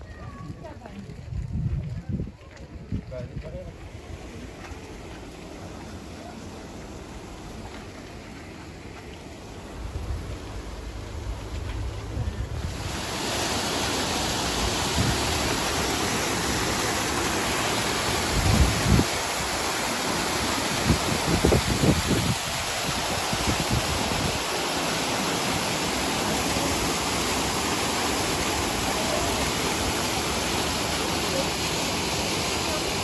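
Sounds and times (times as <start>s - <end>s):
low rumbles: 0.0s - 13.2s
waterfall pouring into pool: 2.2s - 33.0s.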